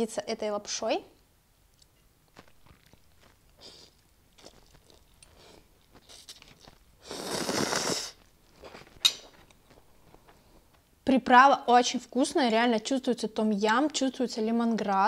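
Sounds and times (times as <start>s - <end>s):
faint chewing: 1.7s - 10.9s
mouth clicks: 3.5s - 8.2s
slurping noodles: 7.0s - 8.2s.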